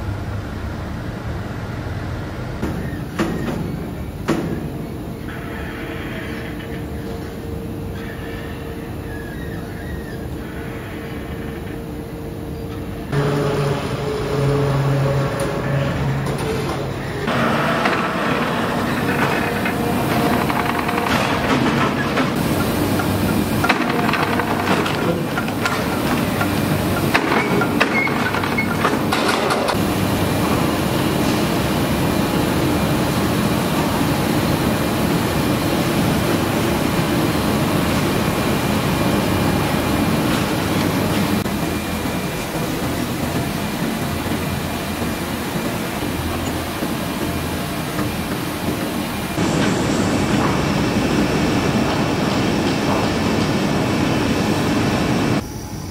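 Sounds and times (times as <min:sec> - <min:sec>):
industrial machinery drone: 0:00.0 - 0:55.9.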